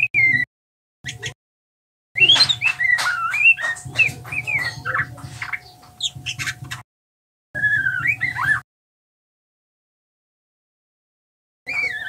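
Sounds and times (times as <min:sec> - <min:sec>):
bird whistles and chirps: 0:00.0 - 0:00.5, 0:02.2 - 0:06.8, 0:07.6 - 0:08.6, 0:11.7 - 0:12.0.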